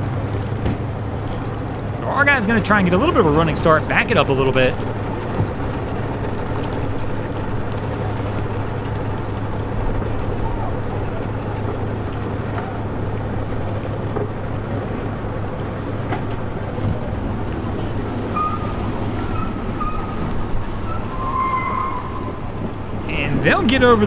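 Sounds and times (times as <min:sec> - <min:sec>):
low engine hum: 0:00.0 - 0:24.0
wind noise on microphone: 0:16.6 - 0:24.0.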